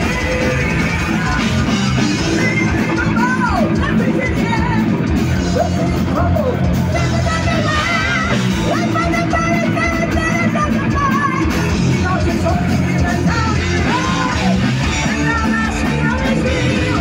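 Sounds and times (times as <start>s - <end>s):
heavy metal band playing live: 0.0s - 17.0s
shouted lead vocal: 0.0s - 17.0s.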